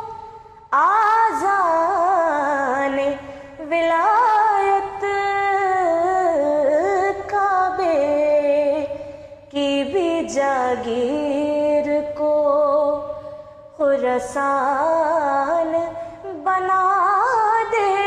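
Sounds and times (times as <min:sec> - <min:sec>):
woman singing: 0:00.0 - 0:18.0.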